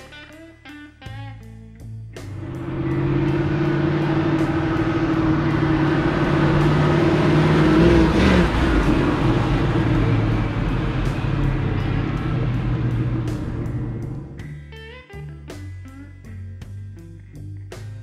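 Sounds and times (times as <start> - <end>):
car engine under throttle: 2.2 - 14.5.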